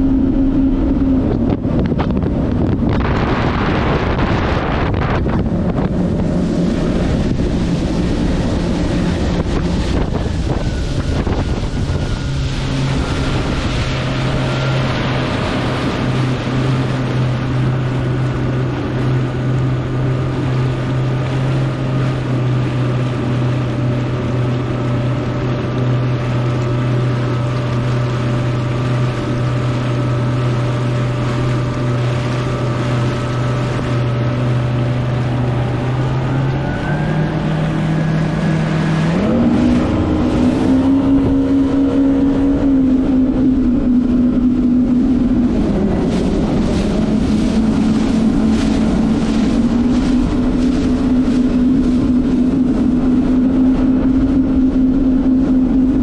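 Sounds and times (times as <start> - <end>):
watercraft engine cruising: 0.0 - 56.0
wind buffeting microphone: 0.0 - 56.0.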